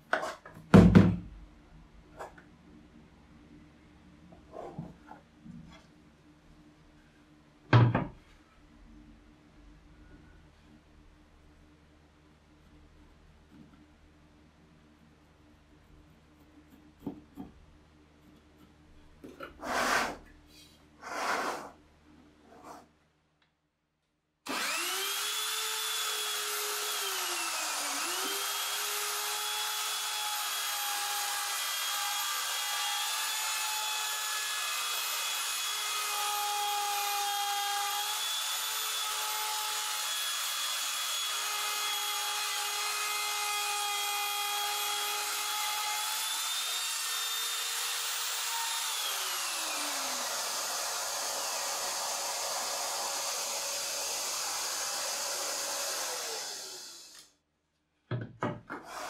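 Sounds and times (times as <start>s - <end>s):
pencil scratching on plywood: 19.6s - 20.2s, 21.0s - 21.8s
electric router whining: 24.5s - 57.2s.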